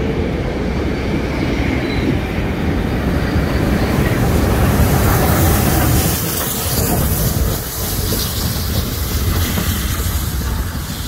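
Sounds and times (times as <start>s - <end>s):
train wheels rumbling on rails: 0.0s - 11.0s
steam hissing: 3.1s - 11.0s.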